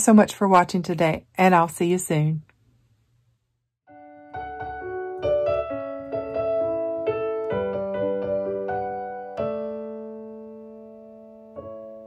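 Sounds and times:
piano music: 3.9s - 12.0s.

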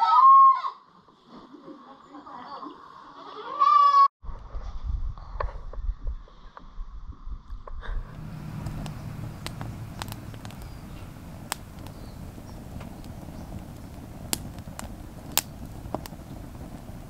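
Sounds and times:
low steady rumble: 6.9s - 17.0s
fire popping: 7.9s - 17.0s
campfire crackling: 8.0s - 17.0s.

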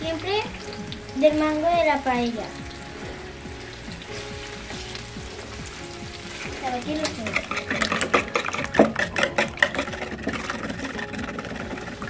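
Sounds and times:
fork beating eggs in plastic bowl: 6.3s - 12.0s
person speaking: 6.5s - 7.8s.

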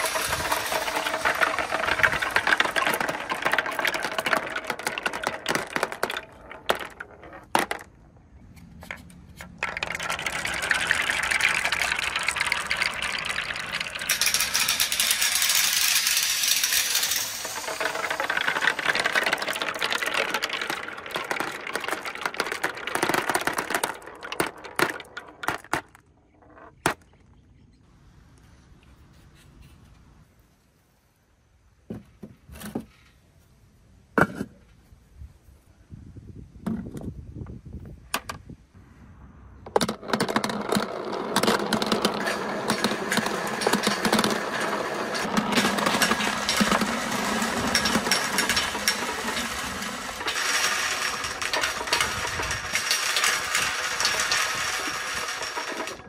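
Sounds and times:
marbles rolling and clicking: 0.0s - 27.2s, 39.6s - 56.0s.

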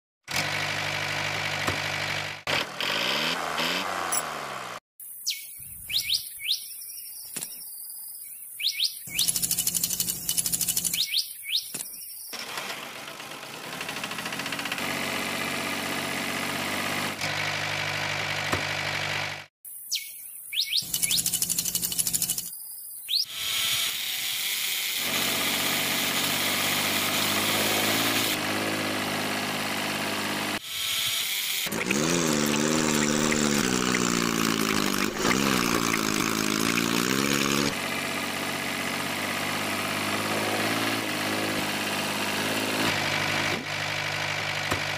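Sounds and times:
engine running and revving: 0.3s - 4.8s, 12.3s - 19.5s, 25.0s - 30.7s, 31.6s - 44.9s.

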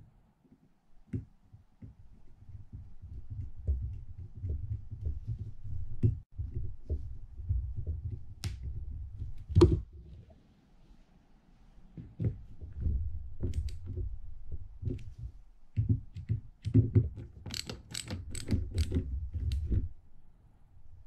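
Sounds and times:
screwdriver tapping and scraping metal: 16.1s - 19.8s.

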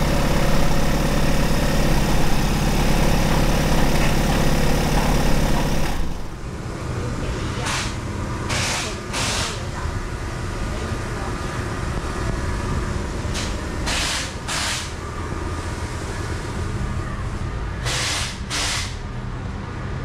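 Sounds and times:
low machine hum: 0.0s - 6.6s.

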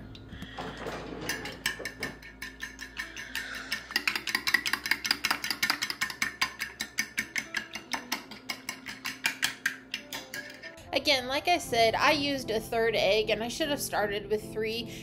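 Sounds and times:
fork whisking against glass: 1.3s - 10.8s.

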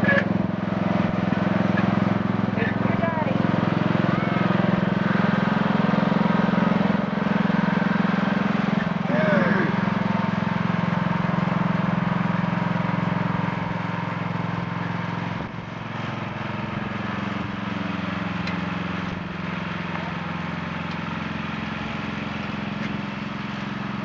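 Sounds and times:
riding lawn mower engine: 0.0s - 24.0s.

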